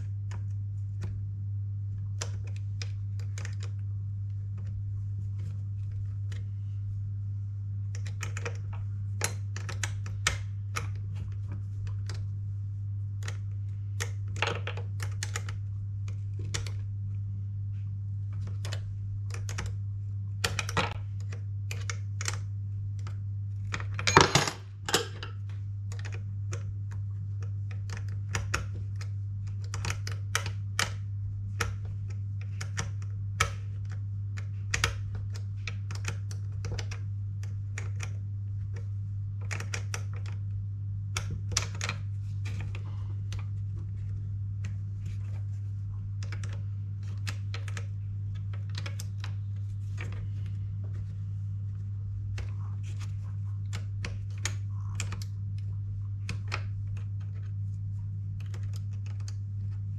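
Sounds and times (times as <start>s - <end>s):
steady low hum: 0.0s - 59.9s
tools and parts clicking: 23.7s - 25.4s.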